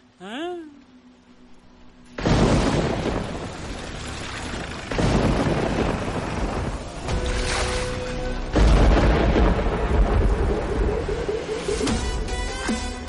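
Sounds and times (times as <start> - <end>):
heavy rain downpour: 1.8 - 13.0
thunder crack: 2.2 - 12.3.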